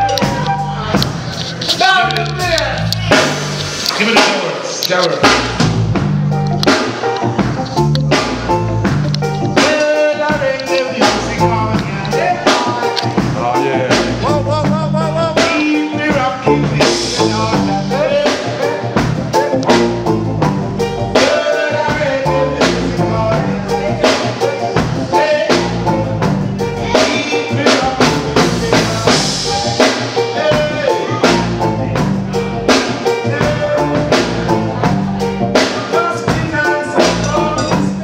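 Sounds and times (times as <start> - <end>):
electric bass: 0.0 - 4.2, 5.0 - 38.0
drum kit: 0.0 - 38.0
reggae band playing: 0.0 - 38.0
man singing into a microphone: 9.6 - 19.8, 21.1 - 26.2, 26.8 - 34.8, 35.7 - 38.0.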